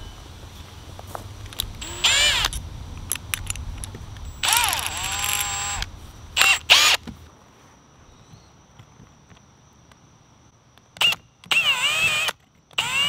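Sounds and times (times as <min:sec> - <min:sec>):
cordless drill motor bursts: 0:01.5 - 0:02.6, 0:04.3 - 0:07.1, 0:11.0 - 0:13.0.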